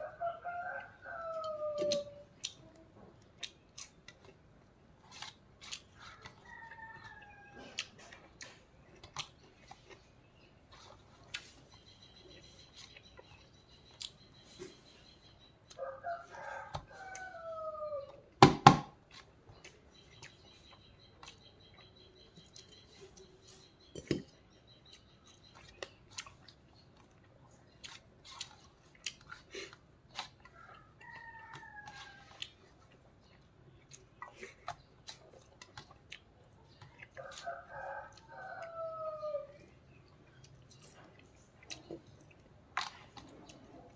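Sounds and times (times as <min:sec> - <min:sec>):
rooster crowing: 0:15.8 - 0:18.2.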